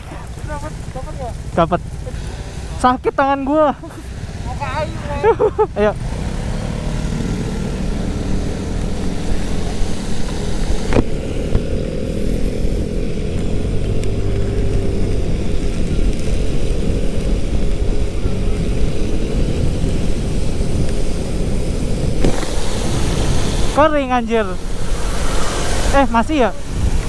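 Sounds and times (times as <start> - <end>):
scooter engine running: 0.0 - 27.0
wind and road noise: 0.0 - 27.0.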